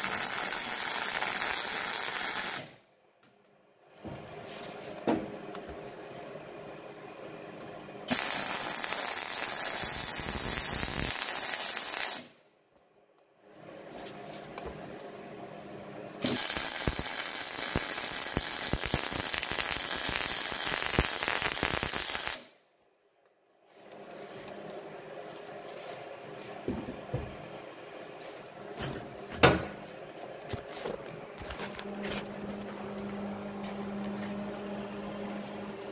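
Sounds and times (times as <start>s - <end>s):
welding arc crackling: 0.0s - 2.8s, 8.1s - 12.3s, 16.2s - 22.5s.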